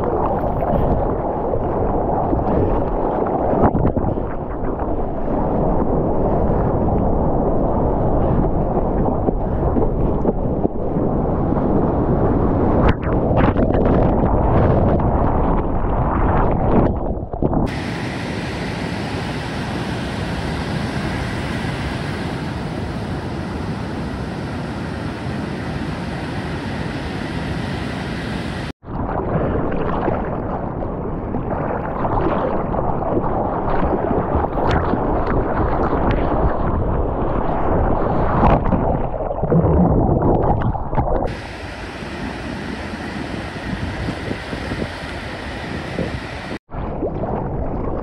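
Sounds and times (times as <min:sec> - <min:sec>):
water churning against camera: 0:00.0 - 0:22.6, 0:28.8 - 0:48.0
water splashing and rushing: 0:00.0 - 0:48.0
breaking surf: 0:17.6 - 0:30.6, 0:41.3 - 0:46.9.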